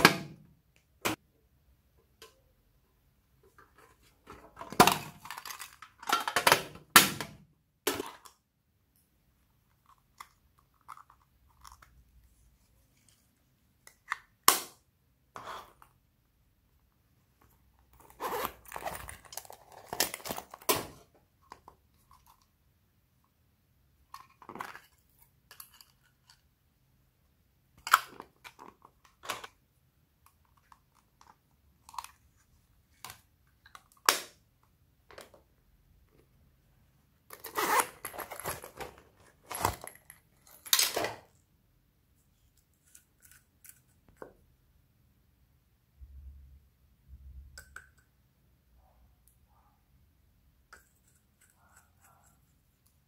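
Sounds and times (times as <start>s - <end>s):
zipper being pulled open: 18.0s - 19.0s, 37.4s - 38.1s.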